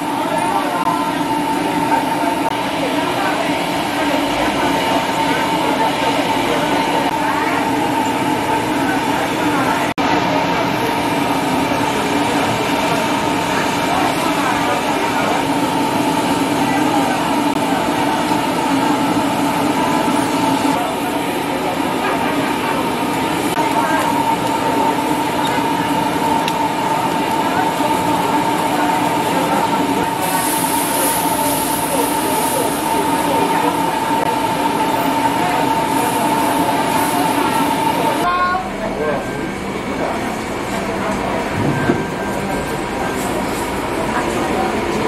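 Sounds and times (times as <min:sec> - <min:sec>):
gas burner roaring: 0:00.0 - 0:45.0.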